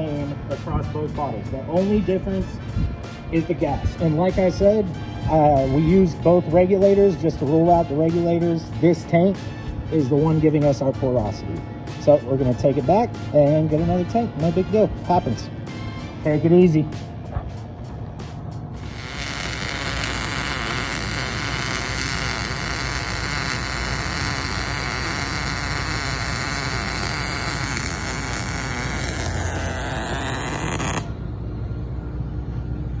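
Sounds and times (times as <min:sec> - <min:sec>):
welding arc noise: 0:18.7 - 0:31.2.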